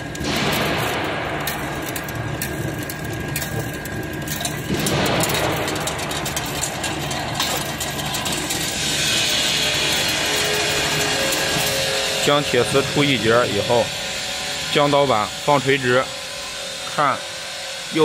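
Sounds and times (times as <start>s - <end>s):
machine clicks: 0.0s - 13.7s
wire weaving machine running: 0.0s - 18.0s.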